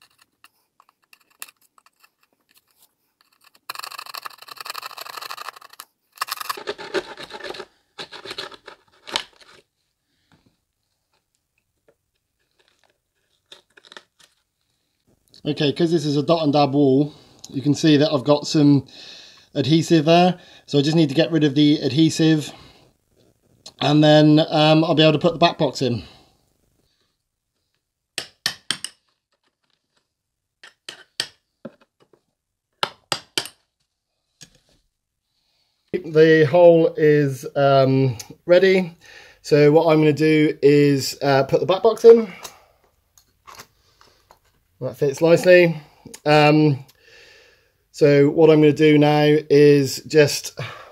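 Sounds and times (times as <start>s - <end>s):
chisel bit chipping plaster: 0.0s - 7.6s.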